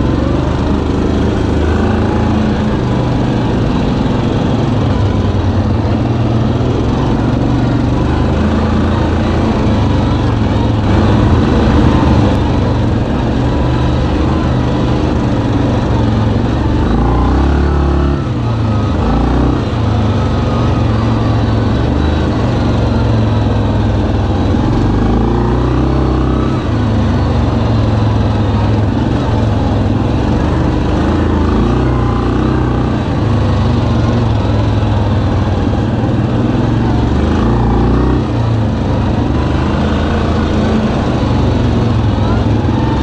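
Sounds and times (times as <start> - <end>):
atv engine running: 0.0 - 43.0.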